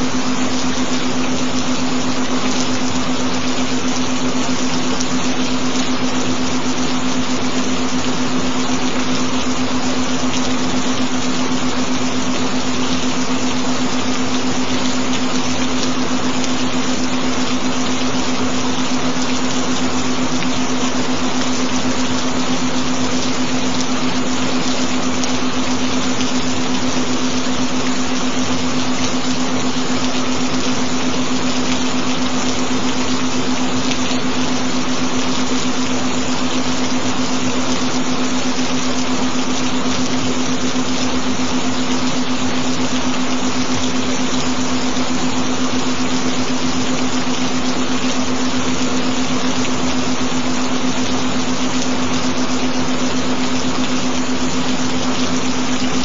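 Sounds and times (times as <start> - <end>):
gentle rain hiss: 0.0 - 56.0.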